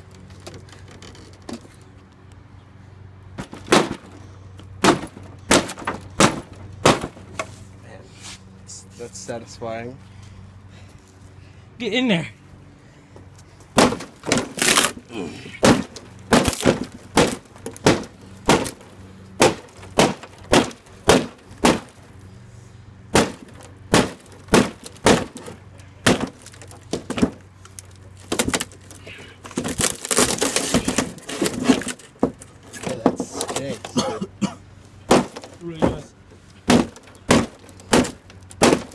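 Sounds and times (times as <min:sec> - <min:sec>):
wood cracking and splintering: 0:13.8 - 0:22.0, 0:23.1 - 0:33.8, 0:36.6 - 0:38.9.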